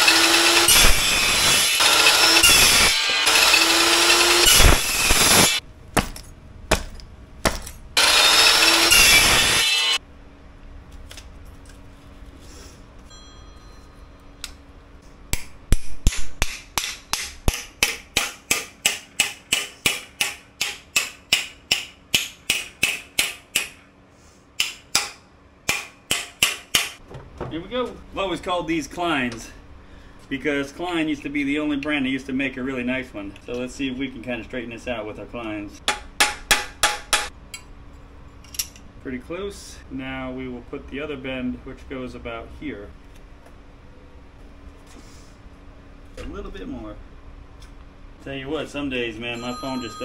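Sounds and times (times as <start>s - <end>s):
chop saw cutting steel: 0.0s - 5.6s, 8.0s - 10.0s.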